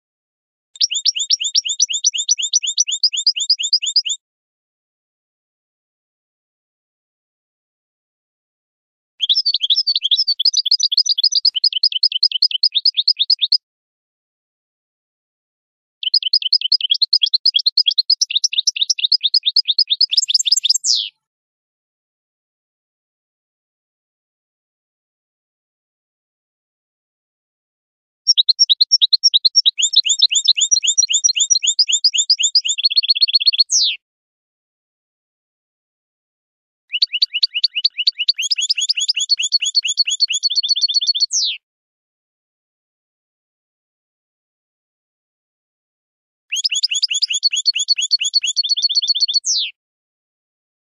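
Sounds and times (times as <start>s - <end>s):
goldfinch singing: 0.8s - 4.2s, 9.2s - 13.6s, 16.0s - 21.2s, 28.3s - 34.0s, 36.9s - 41.6s, 46.5s - 49.7s.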